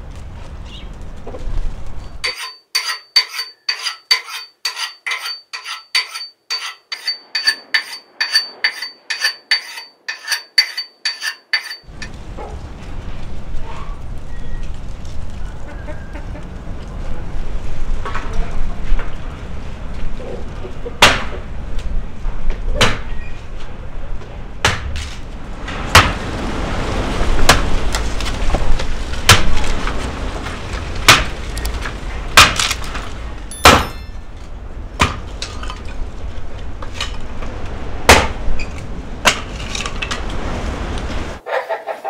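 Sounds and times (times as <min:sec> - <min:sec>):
hatchet chopping wood: 0:21.0 - 0:21.3, 0:22.8 - 0:23.0, 0:24.6 - 0:24.9, 0:26.0 - 0:26.2, 0:32.4 - 0:32.8, 0:33.5 - 0:34.0, 0:35.0 - 0:35.2, 0:38.1 - 0:38.4, 0:39.2 - 0:39.5.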